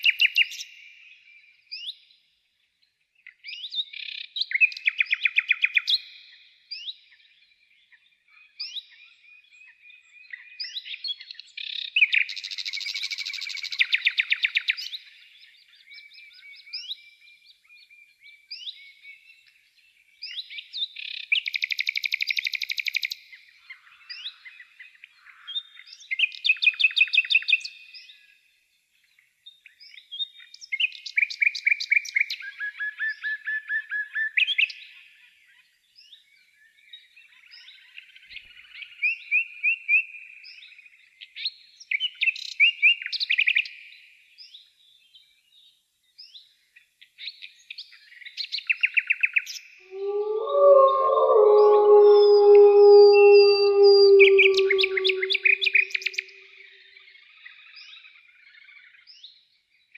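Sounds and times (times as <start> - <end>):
soft bird chirps and whistles: 49.9 - 56.3
songbirds trilling: 49.9 - 56.3.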